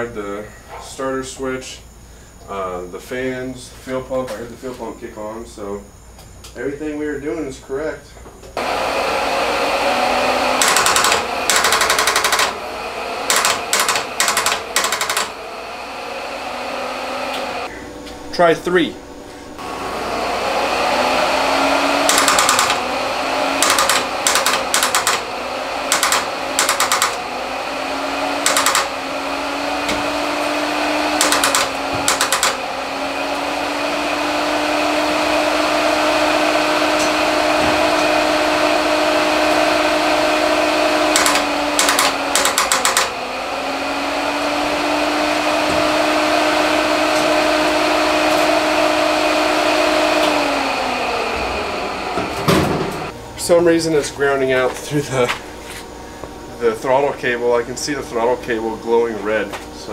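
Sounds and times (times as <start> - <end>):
electric radiator fans humming: 0.0 - 59.9
rapid clicking bursts: 10.6 - 12.6, 13.2 - 15.4, 22.0 - 22.9, 23.6 - 27.2, 28.4 - 29.0, 31.2 - 32.6, 41.1 - 43.2.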